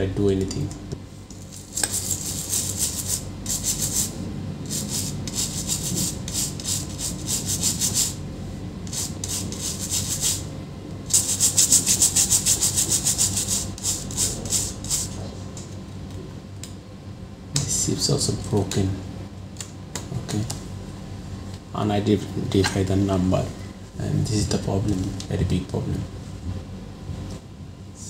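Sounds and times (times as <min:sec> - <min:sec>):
brush scrubbing circuit board: 0:01.6 - 0:08.2, 0:08.9 - 0:10.4, 0:11.1 - 0:15.2.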